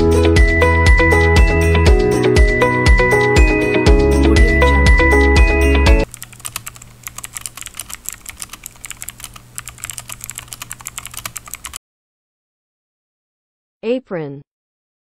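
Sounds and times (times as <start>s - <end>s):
upbeat music jingle: 0.0s - 6.1s
computer keyboard typing: 6.0s - 11.8s.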